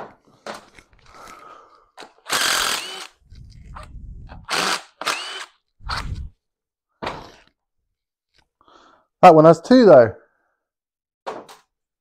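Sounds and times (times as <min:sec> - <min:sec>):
low rumble: 0:03.3 - 0:04.5, 0:05.8 - 0:06.3.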